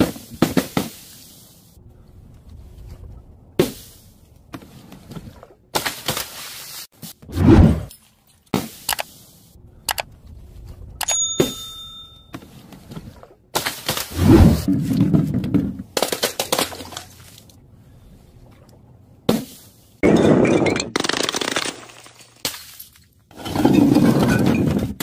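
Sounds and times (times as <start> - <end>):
bell-like ding: 11.0 - 12.4
balloons bursting and splatting: 20.9 - 22.9.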